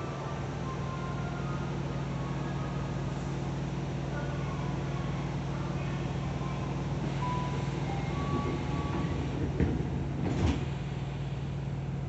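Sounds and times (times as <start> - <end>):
low hum of train equipment: 0.0 - 12.0
sliding doors shutting: 6.9 - 11.0.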